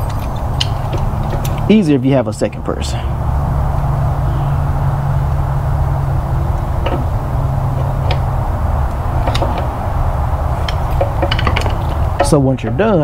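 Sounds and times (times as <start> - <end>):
light metal clicks: 0.0 - 1.8, 6.6 - 12.8
low hum: 0.0 - 13.0.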